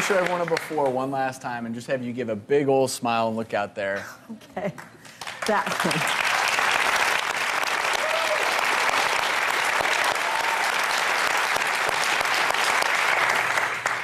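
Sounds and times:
audience applauding: 0.0s - 1.1s, 5.2s - 14.0s.

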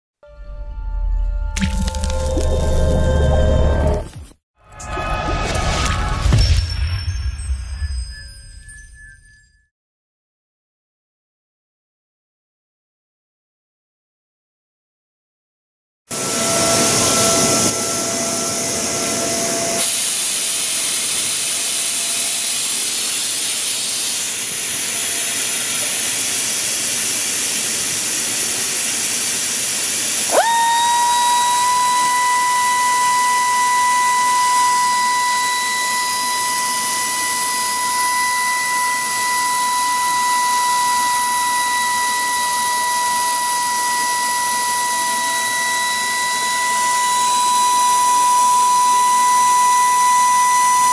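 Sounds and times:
air motor whining: 16.1s - 50.9s.

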